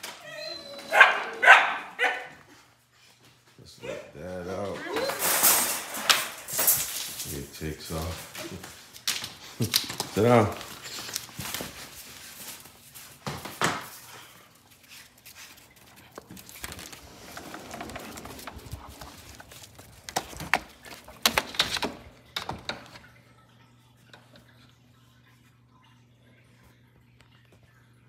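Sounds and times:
dog claws clicking on hard floor: 5.8s - 23.0s.

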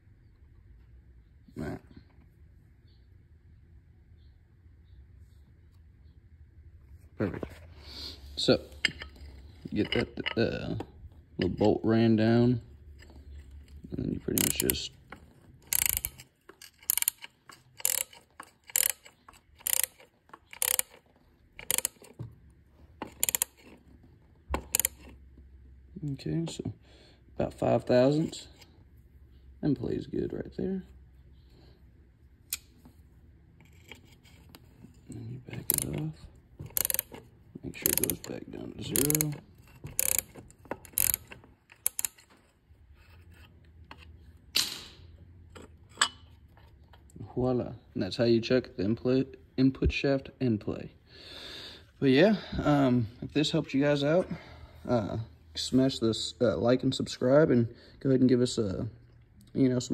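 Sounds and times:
metallic rattle of bolt: 8.7s - 11.8s, 13.0s - 22.2s, 35.5s - 42.4s
ratchet wrench clicking: 14.3s - 15.0s, 15.6s - 22.2s, 23.0s - 23.8s, 24.6s - 25.1s, 35.6s - 36.1s, 36.7s - 37.2s, 37.8s - 42.2s.

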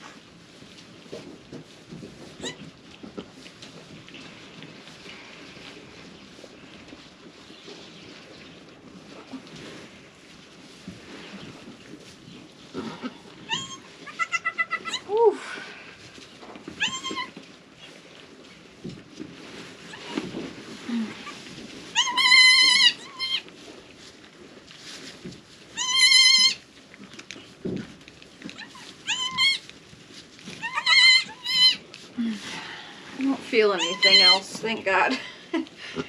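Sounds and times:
goat kids bleating: 13.0s - 15.2s, 16.8s - 17.4s, 22.0s - 23.4s, 25.8s - 26.6s, 28.6s - 29.7s, 30.6s - 31.8s, 33.8s - 34.6s.

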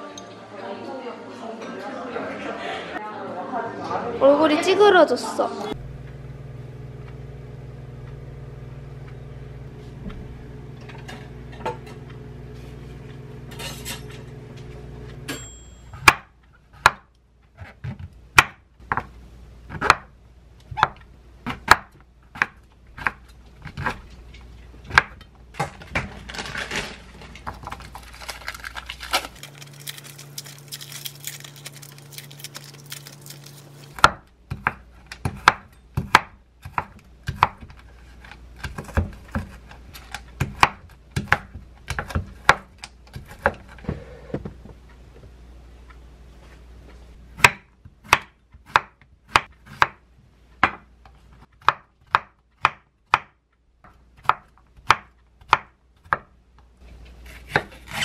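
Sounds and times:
knife chopping on wooden board: 16.0s - 19.1s, 19.7s - 20.1s, 20.7s - 24.0s, 24.9s - 25.2s, 34.0s - 37.8s, 38.6s - 39.8s, 40.4s - 43.8s, 47.4s - 50.0s, 50.6s - 50.9s, 51.5s - 53.4s, 54.2s - 56.3s, 57.2s - 58.0s.

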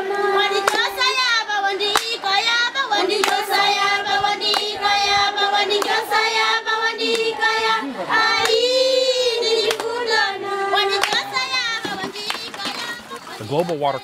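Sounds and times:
children singing: 0.0s - 13.7s
hand claps: 0.1s - 1.0s, 1.9s - 2.2s, 3.1s - 3.6s, 4.4s - 4.7s, 5.7s - 6.0s, 7.0s - 7.3s, 8.4s - 8.6s, 9.6s - 10.0s, 10.9s - 12.8s.

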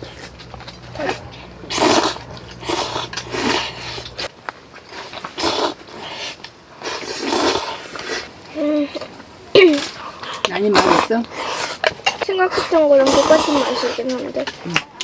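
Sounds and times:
person slurping noodles: 1.0s - 4.3s, 4.9s - 8.3s.

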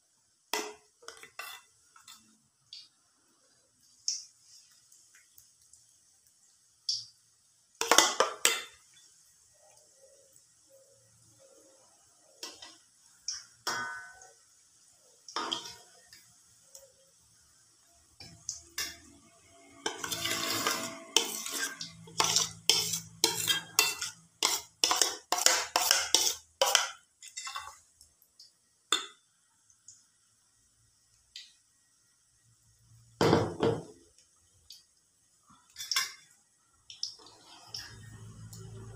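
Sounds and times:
metal spoon clinking in steel bowl: 19.9s - 27.8s.

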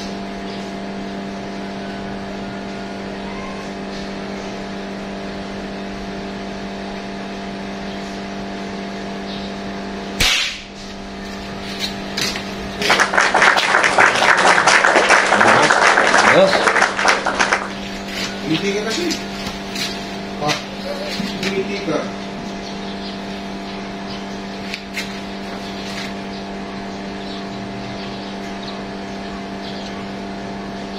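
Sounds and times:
steady machine hum: 0.0s - 30.9s
airgun shot: 10.2s - 10.8s
dense applause-like patter: 12.8s - 17.9s.

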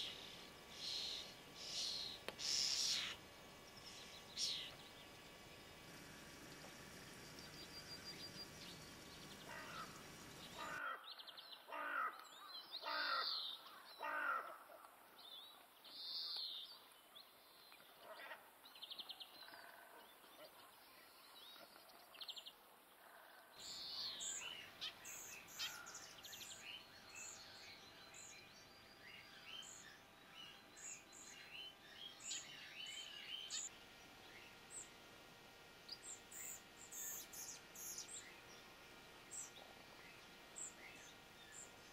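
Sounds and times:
loud bird calls: 0.0s - 14.6s, 23.6s - 28.3s.

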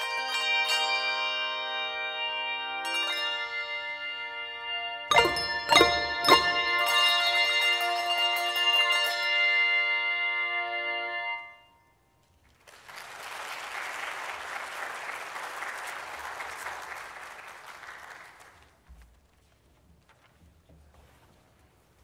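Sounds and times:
handbell chord ringing: 5.1s - 9.4s
audience applauding: 12.5s - 18.9s.

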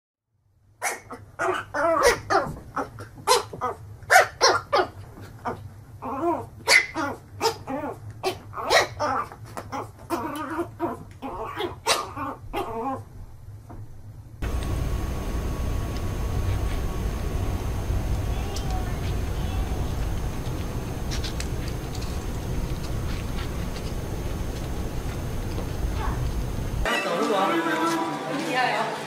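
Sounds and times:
puppy yapping: 0.8s - 13.0s
puppy whimpering and growling: 0.9s - 3.0s, 5.4s - 13.1s.

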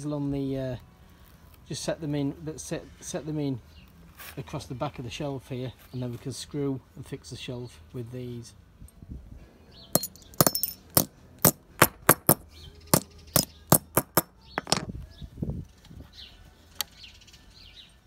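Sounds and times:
hammer striking metal brackets: 10.0s - 14.9s.

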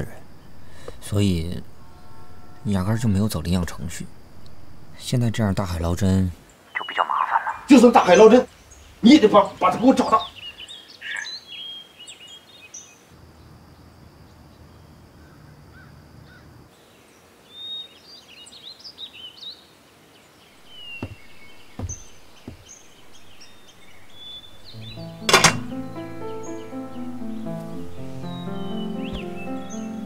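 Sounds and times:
small birds chirping: 0.0s - 30.0s
low thuds: 20.6s - 26.2s, 29.0s - 29.7s
music: 24.7s - 30.0s
phone set down on table: 25.3s - 25.7s.

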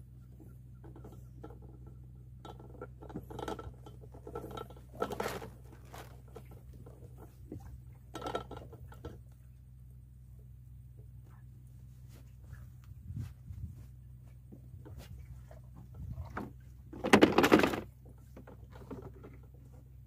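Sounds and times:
steady low hum: 0.0s - 20.0s
fabric rustling against microphone: 11.8s - 15.4s.

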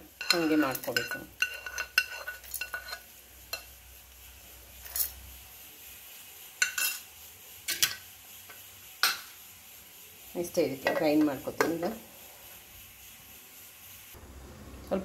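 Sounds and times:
spoon clinking against steel jar: 0.2s - 3.6s.

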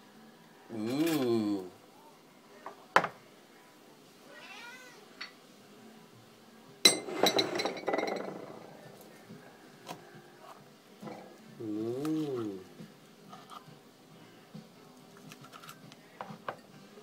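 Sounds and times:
cat meowing: 4.3s - 5.0s.

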